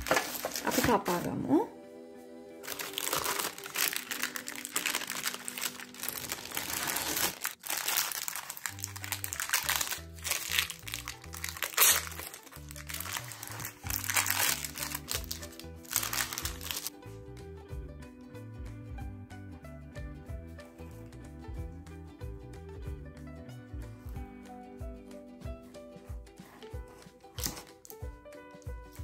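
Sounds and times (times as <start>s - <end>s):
baking paper crinkling: 0.0s - 1.3s, 2.7s - 16.9s
background music: 0.0s - 29.0s.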